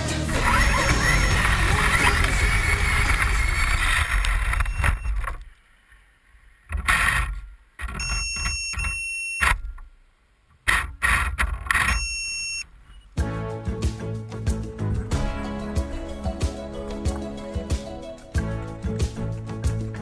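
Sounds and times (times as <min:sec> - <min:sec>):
background music: 0:00.0 - 0:03.6, 0:13.2 - 0:20.0
electric motor high whine: 0:00.3 - 0:05.2.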